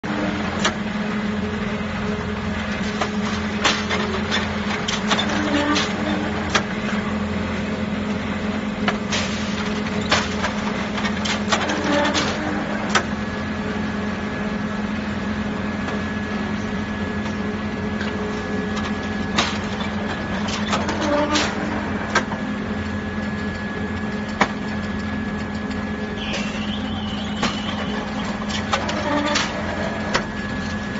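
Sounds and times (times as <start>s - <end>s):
machine hum: 0.0s - 30.9s
thin high whine: 25.1s - 30.9s.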